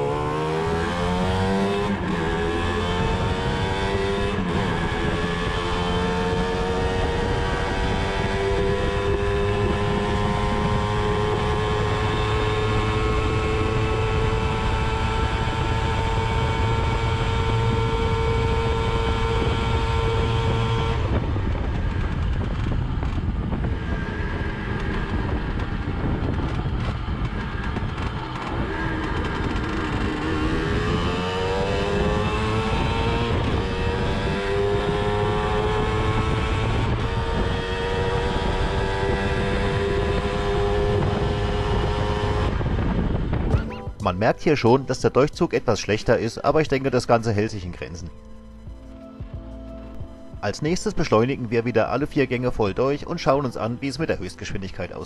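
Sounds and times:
wind rushing over microphone: 0.0 - 43.6.

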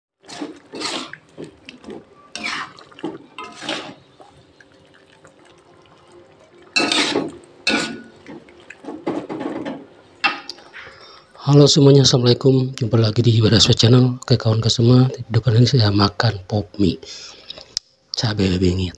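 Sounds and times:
metal scraping on wok: 0.2 - 4.1, 6.8 - 8.1
noodles and broth sloshing: 0.2 - 10.8.

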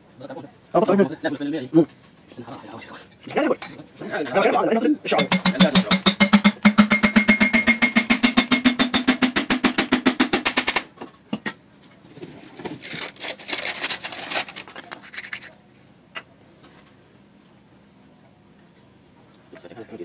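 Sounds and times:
metal knocks: 5.2 - 10.8.

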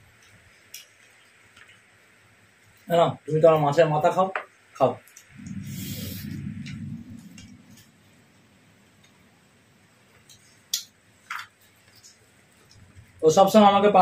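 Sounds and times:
low muffled rumble: 5.3 - 9.8.

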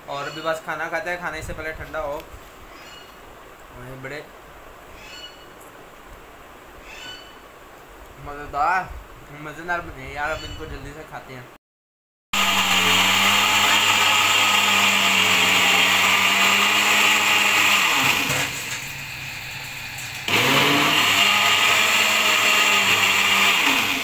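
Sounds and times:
blender motor whining: 12.4 - 24.0.

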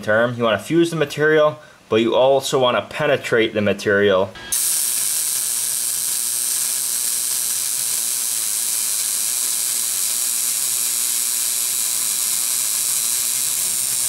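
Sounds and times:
welder arc hiss: 4.5 - 14.0.

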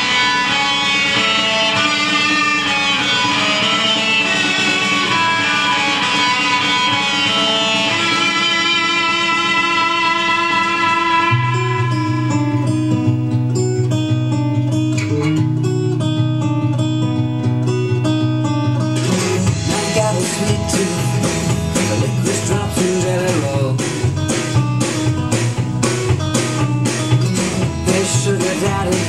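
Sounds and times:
guitar-led recorded song: 0.0 - 29.0
deep steady bass line: 11.4 - 29.0.

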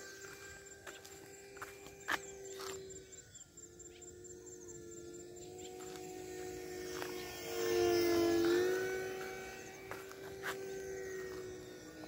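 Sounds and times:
rc plane motor whining: 0.0 - 12.0.

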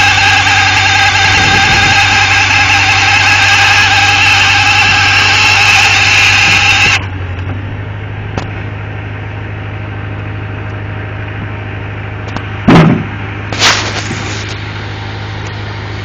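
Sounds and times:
engine idling hum: 0.0 - 16.0
chainsaw cutting log: 13.5 - 14.6
short loud bursts: 13.5 - 14.6.

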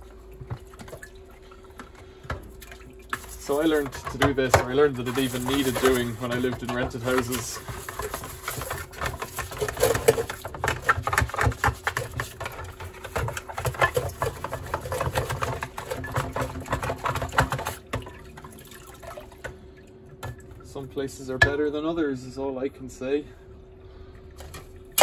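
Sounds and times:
brush scrubbing plastic: 3.1 - 17.9.

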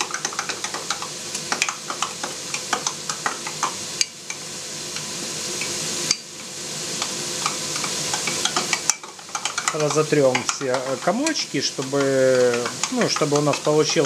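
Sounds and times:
sauce sizzling in a pan: 0.0 - 14.0.

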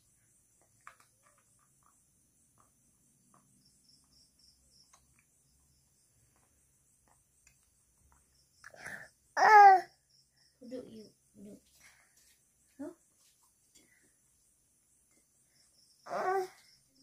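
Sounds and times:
soft small ticks: 0.5 - 8.8.

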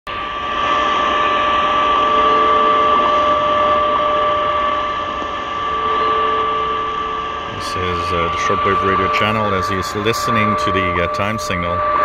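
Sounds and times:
double radio tone: 0.1 - 12.0
radio static hiss: 3.0 - 11.9.

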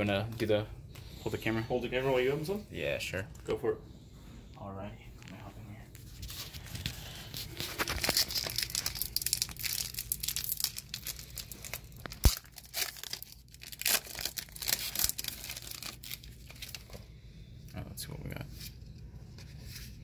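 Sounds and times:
foil wrapper tearing and crinkling: 7.4 - 17.0.

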